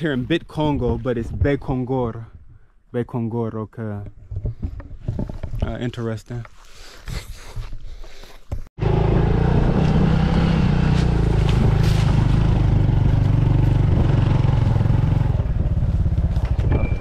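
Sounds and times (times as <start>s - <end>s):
motorcycle engine running: 8.8s - 17.0s.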